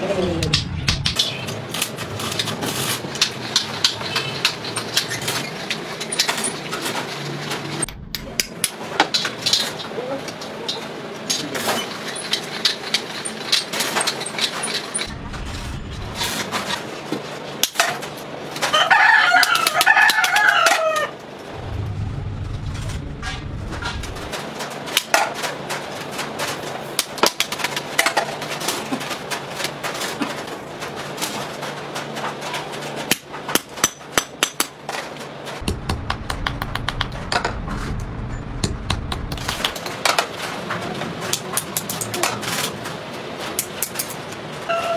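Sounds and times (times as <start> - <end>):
rooster crowing: 18.7 - 21.2, 44.7 - 44.9.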